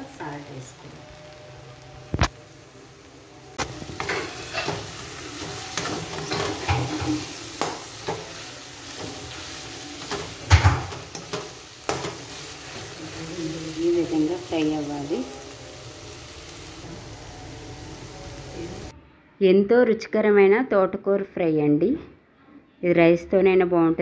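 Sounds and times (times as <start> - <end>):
faint sizzle: 0.0 - 18.9
metal spatula scraping pan: 4.0 - 8.3.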